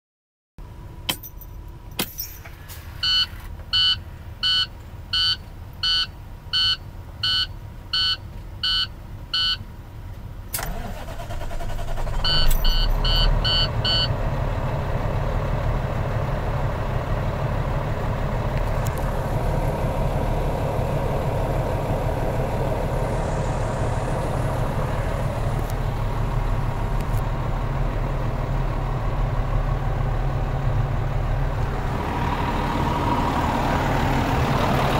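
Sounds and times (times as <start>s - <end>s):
diesel engine idling: 0.6s - 34.9s
dashboard warning chime beeping: 2.8s - 9.6s, 12.2s - 14.1s.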